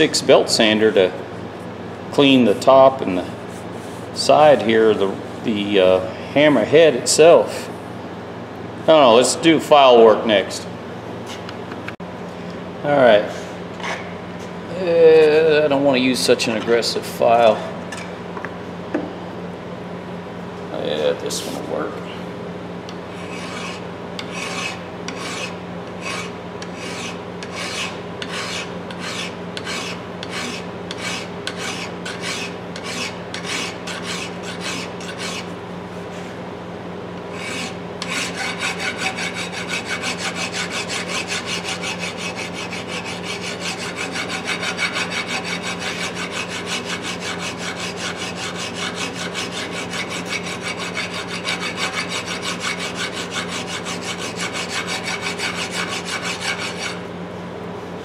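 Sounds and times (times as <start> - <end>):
file rasping on steel: 23.1 - 35.5, 37.3 - 57.0.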